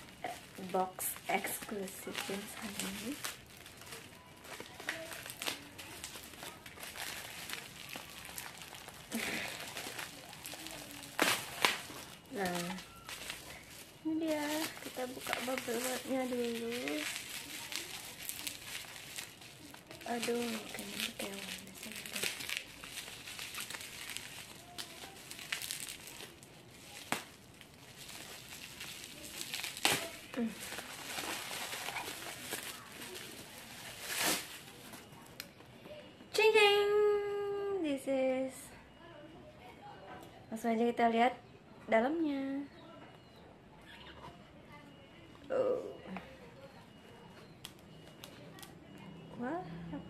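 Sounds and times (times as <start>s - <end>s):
plastic packaging crinkling: 0.0s - 35.6s.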